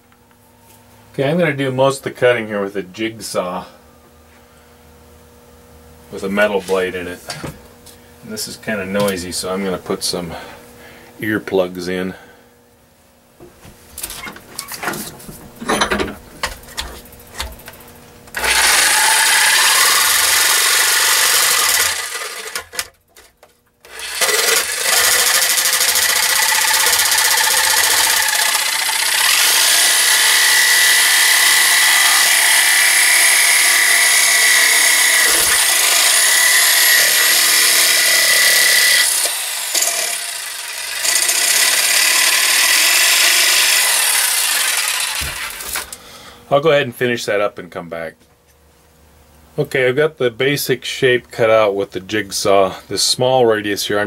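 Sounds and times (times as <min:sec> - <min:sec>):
jigsaw cutting metal: 0:18.4 - 0:22.9, 0:23.8 - 0:46.0.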